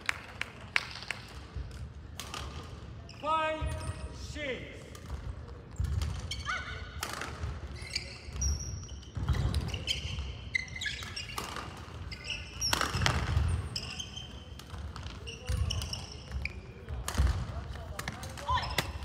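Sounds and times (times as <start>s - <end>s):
shoes squeaking on floor: 5.7s - 6.7s, 7.7s - 17.0s.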